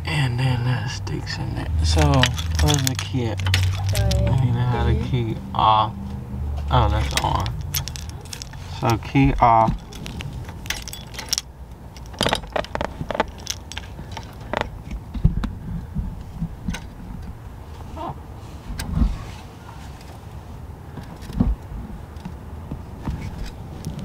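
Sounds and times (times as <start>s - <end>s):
keys jingling: 1.8s - 4.5s, 6.8s - 14.9s
wiring plug clicks and rattles: 1.9s - 4.1s, 6.9s - 15.5s.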